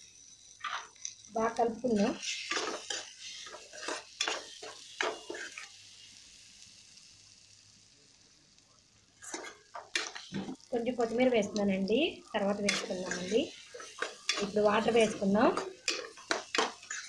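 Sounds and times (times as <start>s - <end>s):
frying sizzle: 0.0s - 17.0s
spatula scraping pan: 1.8s - 5.7s, 9.2s - 10.7s, 12.4s - 17.0s.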